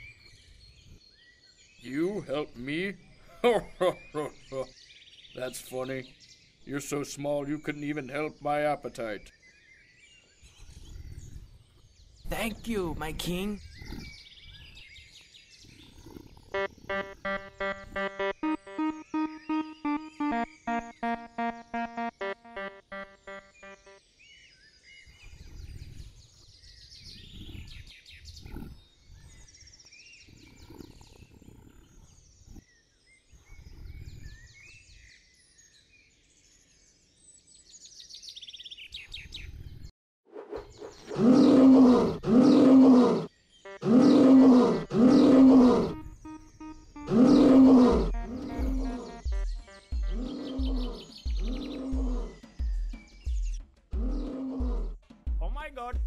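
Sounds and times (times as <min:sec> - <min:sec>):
bird chirps: 0:00.0 - 0:39.9, 0:40.5 - 0:54.8
cartoon lion roaring: 0:41.1 - 0:46.1, 0:47.0 - 0:49.3, 0:50.1 - 0:52.4, 0:54.0 - 0:55.0.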